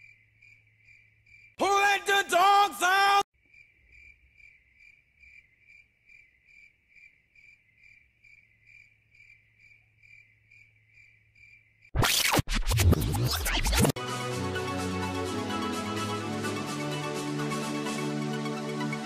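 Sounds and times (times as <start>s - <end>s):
crickets chirping: 0.0s - 1.6s, 3.4s - 11.9s.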